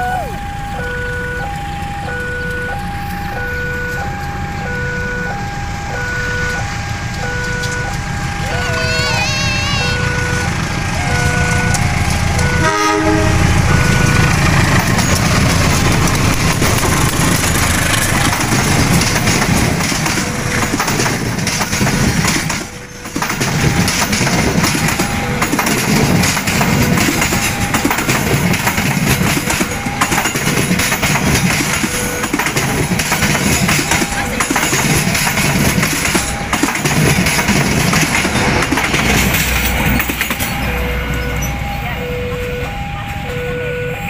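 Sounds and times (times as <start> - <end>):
level-crossing warning alarm: 0.0 - 44.0
train wheels rumbling on rails: 0.0 - 44.0
train horn blast: 3.4 - 14.6.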